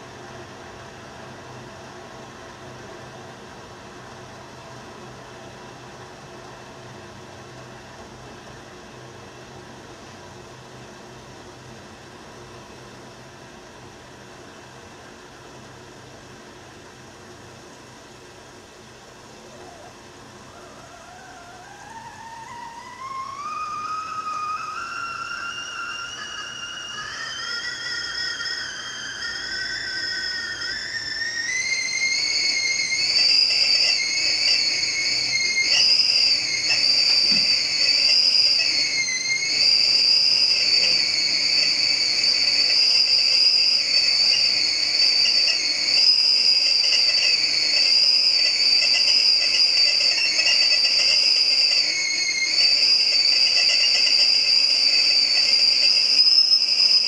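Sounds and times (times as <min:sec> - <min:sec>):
kettle whistling: 0:00.0 - 0:57.0.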